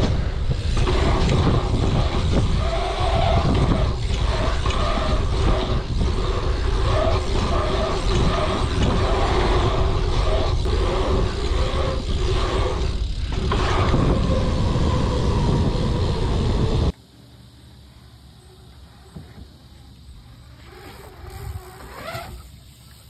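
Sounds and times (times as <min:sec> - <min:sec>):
bike tyre roar: 0:00.0 - 0:17.0, 0:20.3 - 0:23.0
wind rumble on microphone: 0:00.0 - 0:17.0.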